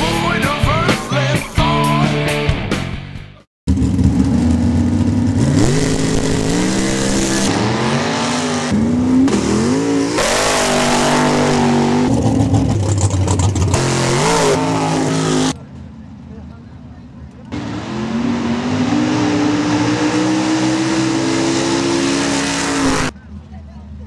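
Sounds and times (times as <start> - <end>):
truck engines revving hard: 3.7 - 15.7, 17.5 - 23.2.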